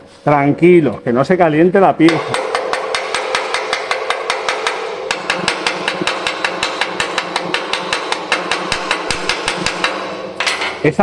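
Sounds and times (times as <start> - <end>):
rapid hammer blows on metal: 2.0 - 11.0.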